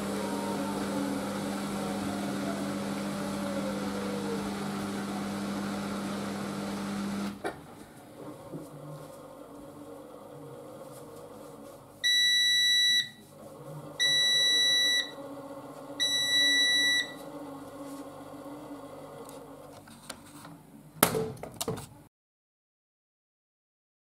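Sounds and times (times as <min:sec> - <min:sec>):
washing machine low hum: 0:00.0 - 0:19.6
washing machine beeps: 0:12.0 - 0:13.3, 0:14.0 - 0:15.2, 0:16.0 - 0:17.2.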